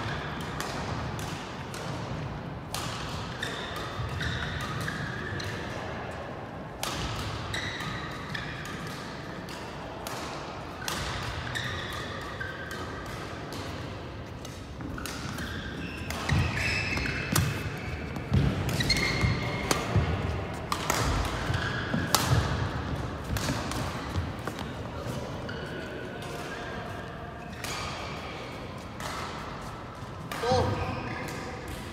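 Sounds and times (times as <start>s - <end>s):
rackets hitting shuttlecock: 0.0s - 5.8s, 6.7s - 25.6s, 27.5s - 31.9s
sports shoes squeaking: 3.3s - 5.4s, 7.5s - 8.1s, 14.8s - 20.1s.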